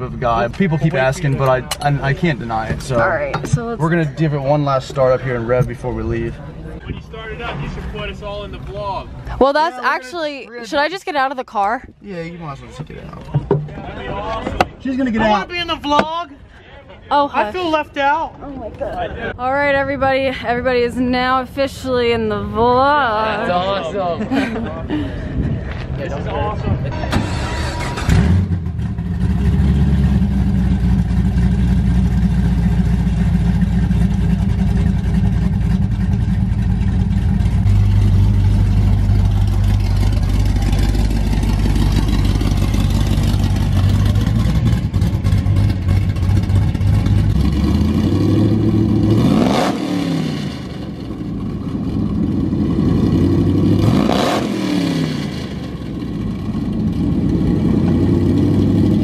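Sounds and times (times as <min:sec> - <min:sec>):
car engine idling and revving: 0:00.0 - 0:09.4, 0:25.3 - 0:59.0.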